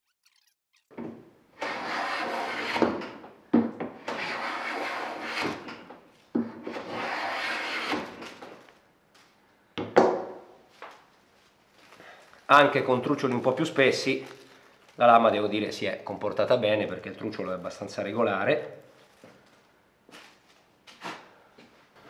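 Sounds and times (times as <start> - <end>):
hand plane shaving wood: 1.6 - 3.0, 4.1 - 5.6, 6.6 - 8.3.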